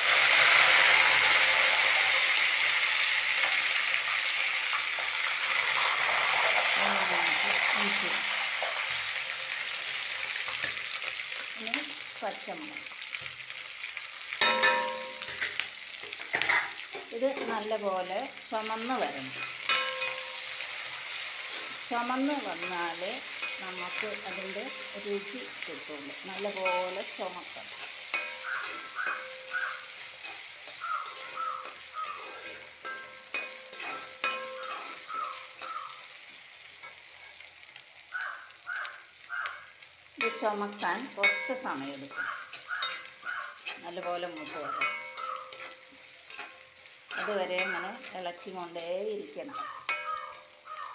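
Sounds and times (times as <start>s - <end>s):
food sizzling in hot oil: 0.0s - 50.9s
spoon clinking against metal: 14.4s - 15.5s, 19.4s - 20.6s, 27.7s - 35.8s, 40.2s - 48.2s, 49.6s - 50.8s
steel plate clanging on wok: 14.4s - 15.6s, 16.3s - 17.6s, 19.0s - 20.7s, 22.3s - 25.0s, 26.4s - 35.7s, 40.2s - 48.4s, 49.8s - 50.5s
spoon scraping a metal pan: 19.0s - 25.6s, 26.4s - 35.8s, 40.2s - 48.5s, 49.6s - 50.8s.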